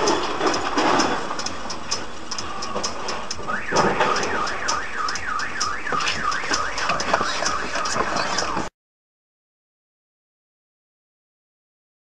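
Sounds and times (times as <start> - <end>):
car alarm warbling: 0.0 - 8.7
low traffic noise: 0.0 - 8.7
rapid steady ticking: 0.0 - 8.7.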